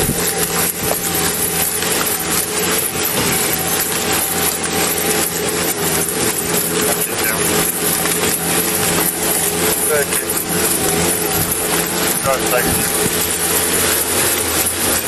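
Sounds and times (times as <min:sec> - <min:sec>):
loader engine humming: 0:00.0 - 0:15.0
camera thumps and rustling: 0:10.4 - 0:14.3.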